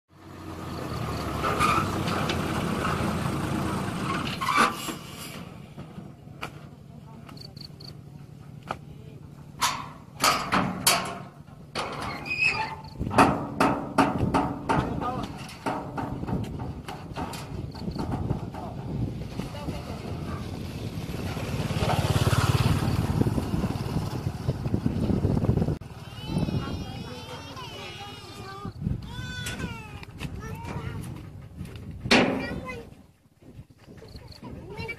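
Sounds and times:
truck engine idling: 0:00.2 - 0:07.1.

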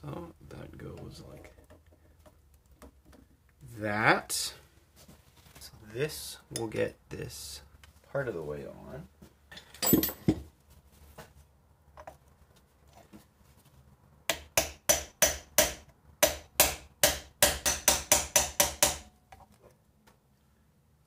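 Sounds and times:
hammer striking metal block: 0:14.3 - 0:19.1.

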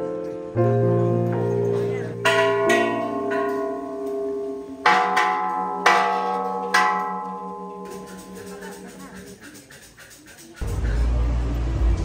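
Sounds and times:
bronze bells struck and ringing: 0:00.6 - 0:09.4.

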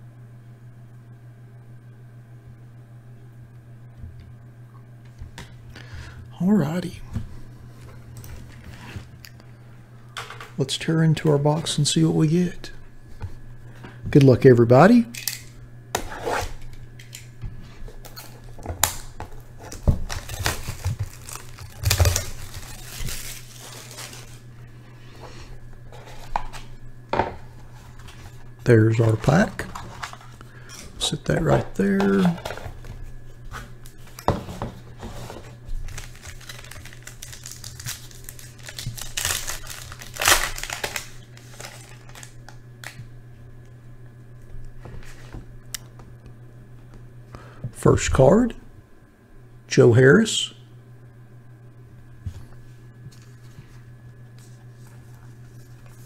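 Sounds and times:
steady low hum: 0:00.0 - 0:56.0
plastic wrap crinkling and tearing: 0:18.1 - 0:24.5, 0:35.7 - 0:43.0.

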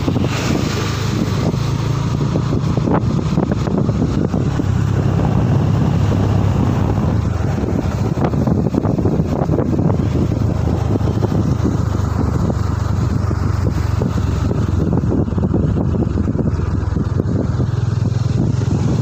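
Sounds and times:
pickup truck passing: 0:00.0 - 0:19.0
steady engine drone: 0:00.0 - 0:19.0
wind rushing over microphone: 0:00.0 - 0:19.0.

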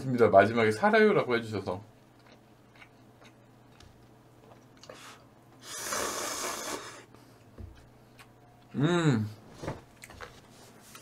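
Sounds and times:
faint low hum: 0:06.8 - 0:11.0.

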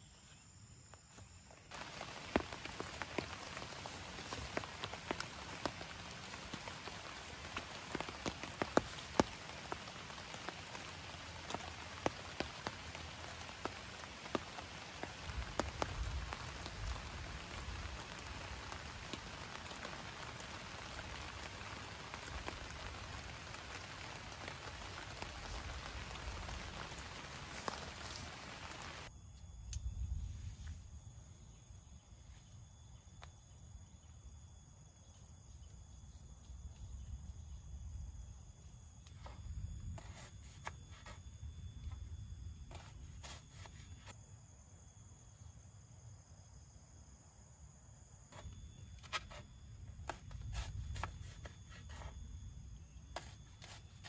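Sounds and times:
insect calls: 0:00.0 - 0:54.0
heavy rain falling: 0:01.7 - 0:29.1
raindrops ticking close by: 0:01.7 - 0:29.1.

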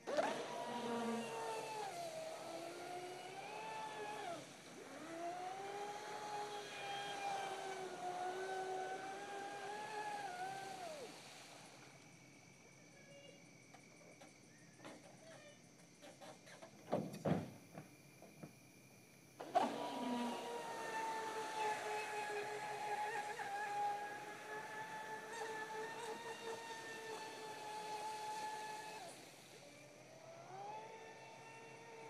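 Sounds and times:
electric motor whining: 0:00.0 - 0:11.1, 0:19.4 - 0:32.0
water hissing off hull: 0:00.0 - 0:12.2, 0:19.4 - 0:30.3.

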